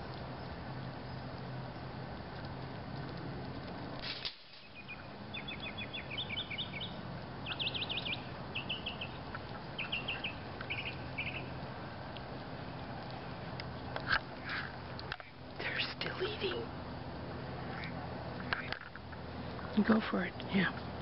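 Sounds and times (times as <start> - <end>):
steady low hum: 0.0 - 21.0
songbird chirping and trilling: 4.6 - 12.2.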